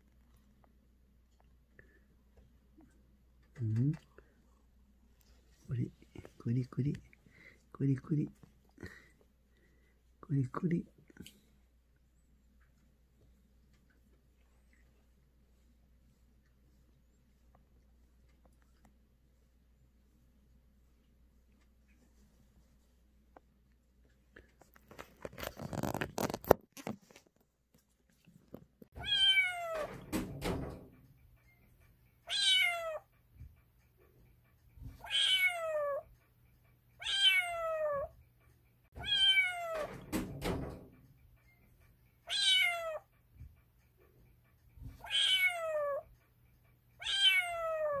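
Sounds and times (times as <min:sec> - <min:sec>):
kitten meowing: 0:29.0 - 0:29.9, 0:32.3 - 0:33.0, 0:35.0 - 0:36.0, 0:37.0 - 0:38.1, 0:39.0 - 0:39.9, 0:42.3 - 0:43.0, 0:45.0 - 0:46.0, 0:47.0 - 0:48.0.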